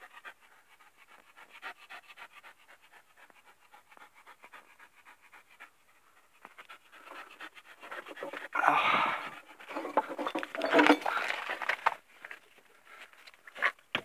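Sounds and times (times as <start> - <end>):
dog panting faintly: 0.0 - 8.6.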